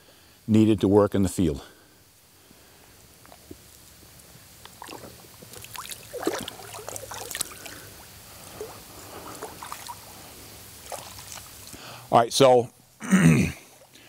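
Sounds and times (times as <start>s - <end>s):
water splashing and sloshing: 4.6s - 11.8s.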